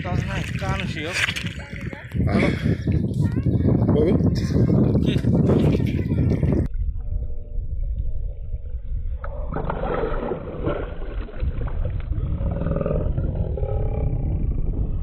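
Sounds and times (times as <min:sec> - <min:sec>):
water sloshing and splashing: 0:00.0 - 0:02.2, 0:09.3 - 0:12.3
low rumble: 0:00.0 - 0:15.0.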